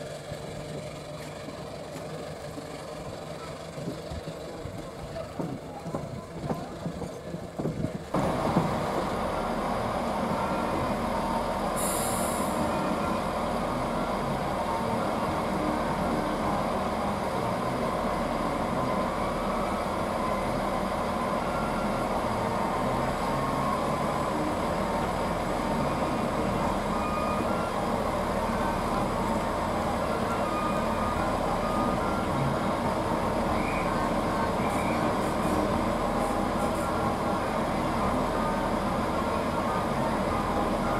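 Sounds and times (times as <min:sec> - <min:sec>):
diesel train engines idling: 0:00.0 - 0:40.9
air hiss: 0:11.6 - 0:13.0.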